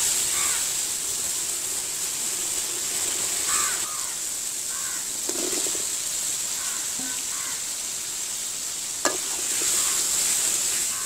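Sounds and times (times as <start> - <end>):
paste frying in oil: 0.0 - 11.0
crow cawing: 0.3 - 0.7, 3.5 - 5.2, 6.5 - 7.7, 9.6 - 10.1.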